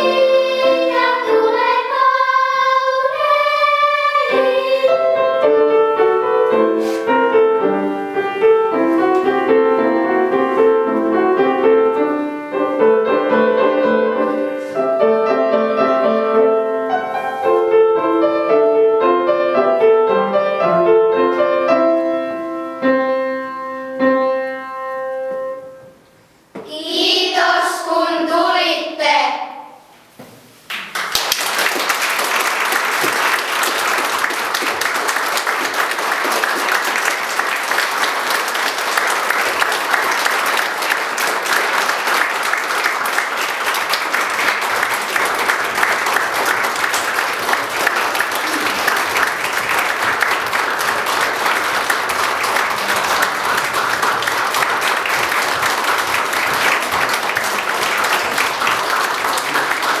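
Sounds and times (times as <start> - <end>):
audience applause: 30.8 - 60.0.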